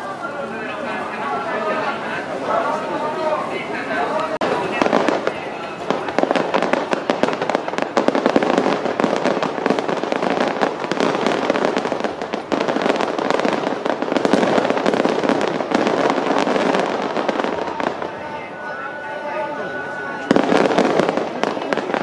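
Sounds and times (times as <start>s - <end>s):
fireworks bursting and crackling: 0.0s - 22.0s.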